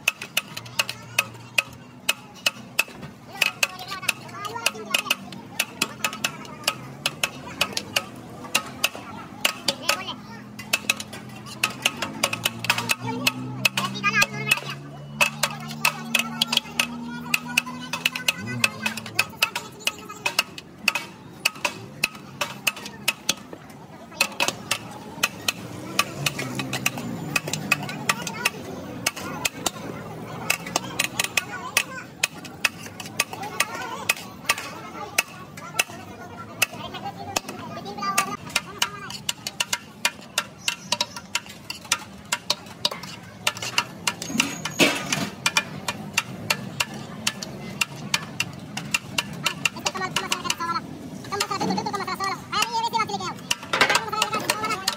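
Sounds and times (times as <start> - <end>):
metal spoon clinking against pot: 38.2 - 50.6.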